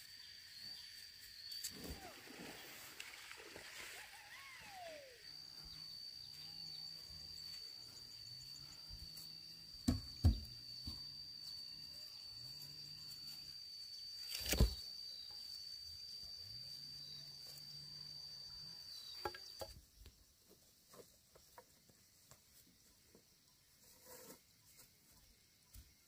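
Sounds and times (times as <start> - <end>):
high-pitched insect drone: 0.0 - 19.9
wooden frame knocking on grass: 9.8 - 11.0.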